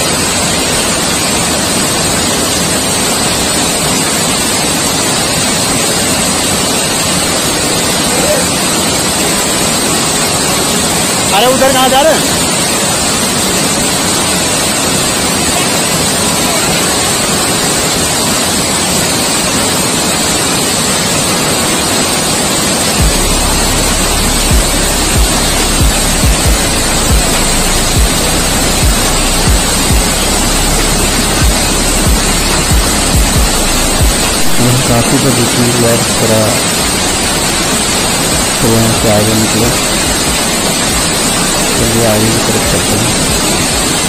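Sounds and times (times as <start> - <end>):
waterfall pouring over rocks: 0.0 - 44.0
deep low rumble with thump: 23.0 - 23.6, 24.5 - 30.2, 31.4 - 34.6.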